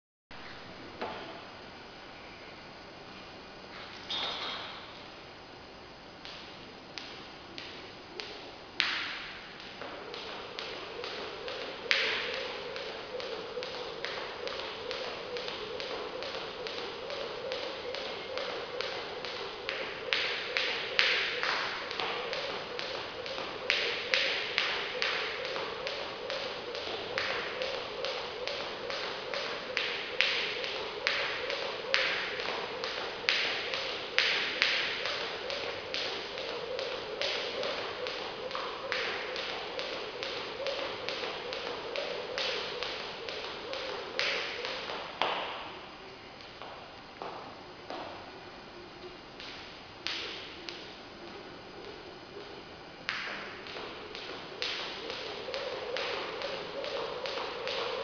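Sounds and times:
steady hum: 0.3 - 58.0
jump rope tapping the floor: 6.2 - 45.8, 53.1 - 58.0.

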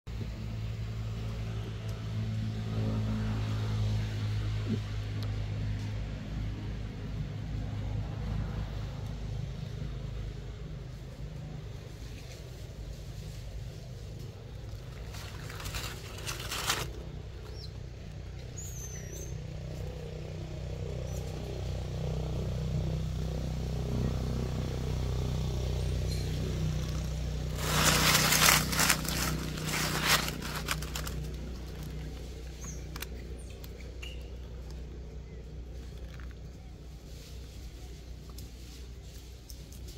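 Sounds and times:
low engine hum: 0.1 - 39.9
dry leaves rustling and crunching: 11.8 - 17.7, 26.0 - 33.2.

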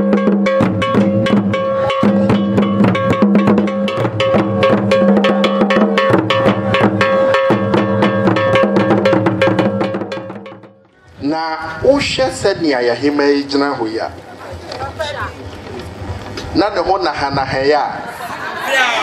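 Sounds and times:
drum ensemble fast rhythm: 0.0 - 10.8.

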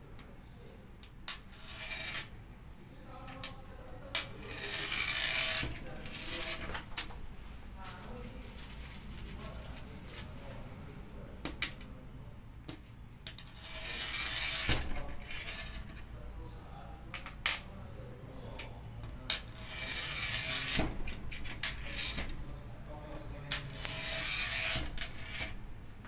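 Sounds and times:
pellet whirring on wood: 23.8 - 25.5.

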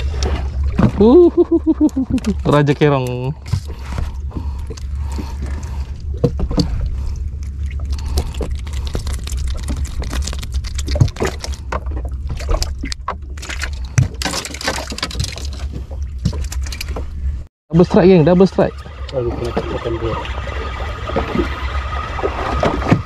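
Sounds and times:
steady low rumble: 0.0 - 23.0
knocks and clatter on boat: 0.1 - 1.1, 2.0 - 7.0, 10.8 - 17.1, 21.0 - 23.0.

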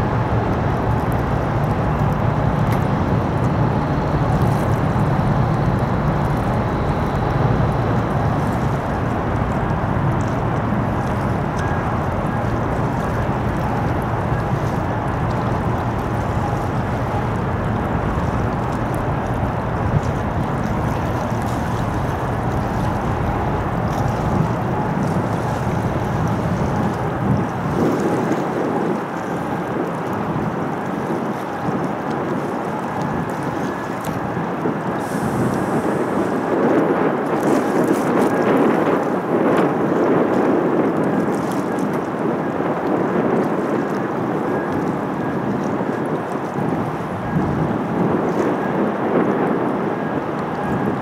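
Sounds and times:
low rumble: 0.0 - 27.6
water washing: 0.0 - 49.4
wind noise on microphone: 0.0 - 51.0.

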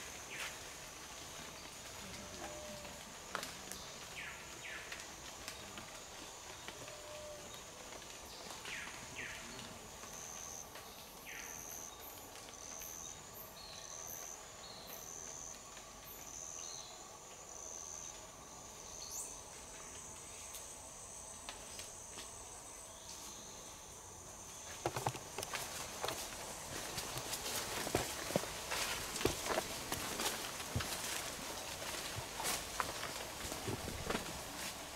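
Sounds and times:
insects droning: 0.0 - 34.9
footsteps in leaf litter: 24.8 - 34.9.

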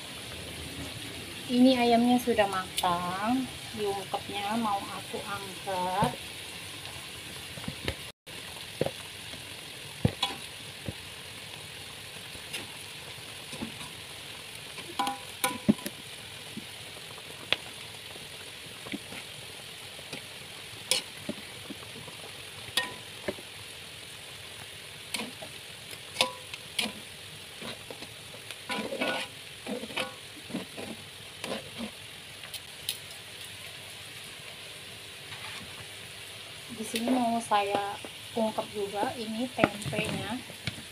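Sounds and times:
chicken sizzling in a pan: 0.0 - 40.9
utensil scraping a pan: 25.1 - 32.0, 35.3 - 35.8.

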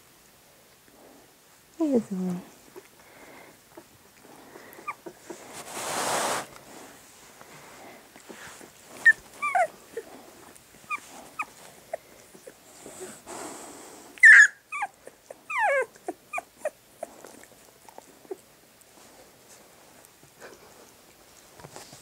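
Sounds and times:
puppies whimpering and squeaking: 3.7 - 6.2, 8.3 - 13.2, 14.2 - 18.4.

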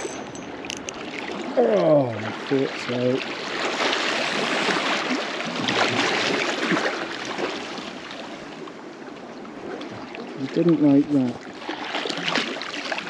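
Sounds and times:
sea water splashing on rocks: 3.1 - 8.4, 11.6 - 13.0.

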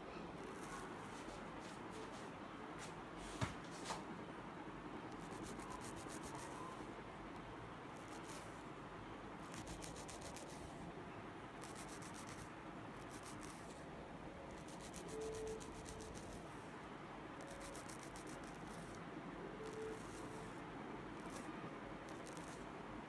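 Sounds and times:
scratchy brushing on hair: 0.4 - 4.0, 5.1 - 6.8, 8.0 - 8.6, 9.4 - 10.7, 11.6 - 13.8, 14.5 - 16.5, 17.4 - 19.0, 21.2 - 21.5, 22.1 - 22.7.

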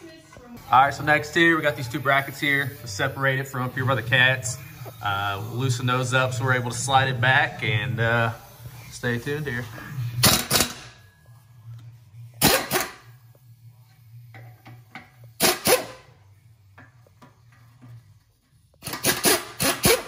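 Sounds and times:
low steady hum: 0.0 - 15.4
pneumatic impact wrench bursts: 10.2 - 11.0, 12.4 - 13.1, 15.2 - 16.2, 18.8 - 20.0.

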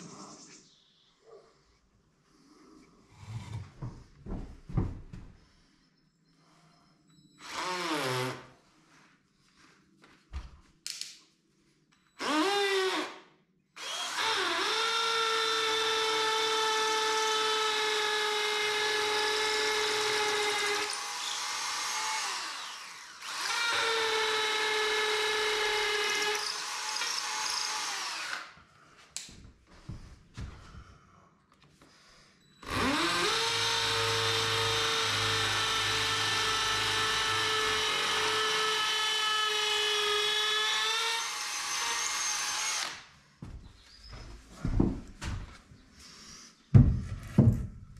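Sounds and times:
electric drill boring into wall: 7.4 - 8.5, 12.2 - 13.2, 13.8 - 28.6, 32.6 - 43.1.

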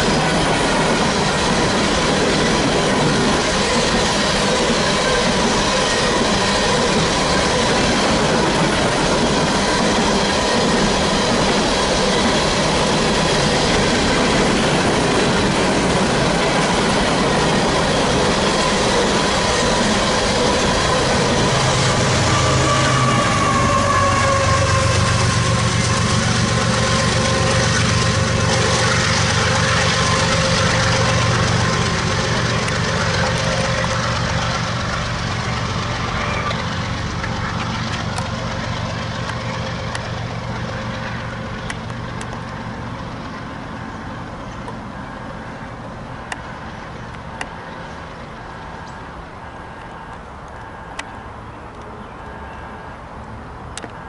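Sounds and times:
diesel locomotive engine hum: 0.0 - 54.0
rumble of train cars: 0.0 - 54.0
whining tone dropping in pitch: 18.2 - 39.6.

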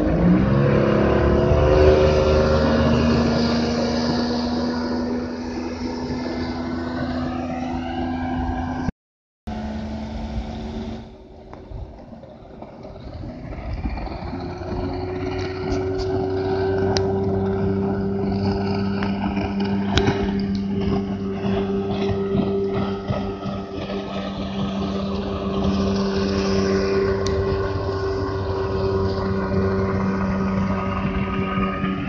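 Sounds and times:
motorboat engine running: 0.0 - 8.9, 9.5 - 32.0.

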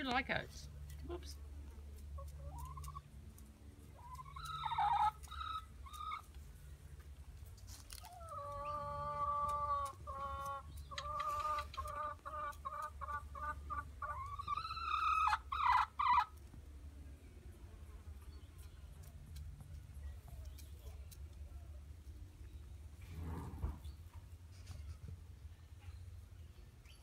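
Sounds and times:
hens clucking: 1.9 - 6.6, 7.7 - 16.5.

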